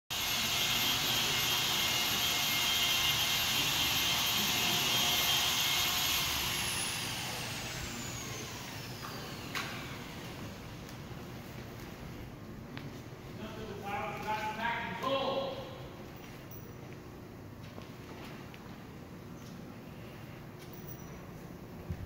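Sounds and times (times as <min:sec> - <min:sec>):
electric blower motor whining: 0:00.1 - 0:11.2.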